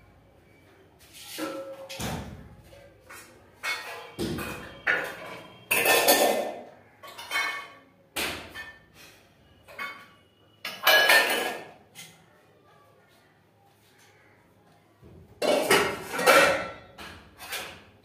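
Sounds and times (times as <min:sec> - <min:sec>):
hard objects knocking: 0:01.4 - 0:08.8, 0:09.6 - 0:12.1, 0:15.1 - 0:18.0.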